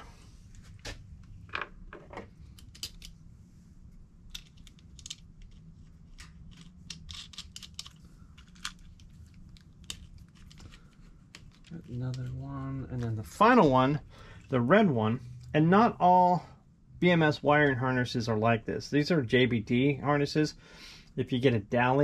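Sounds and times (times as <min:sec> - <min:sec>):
faint low hum: 0:00.0 - 0:22.0
small wires and nuts clicking: 0:01.5 - 0:03.2, 0:04.3 - 0:13.1.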